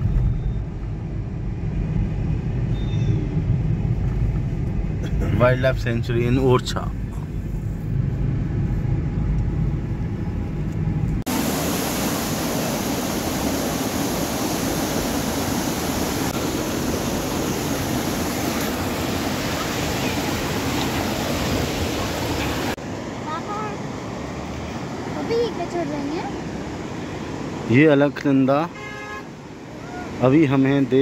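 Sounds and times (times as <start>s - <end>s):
road rumble inside moving car: 0.0s - 11.3s
fast-flowing river water: 11.3s - 27.9s.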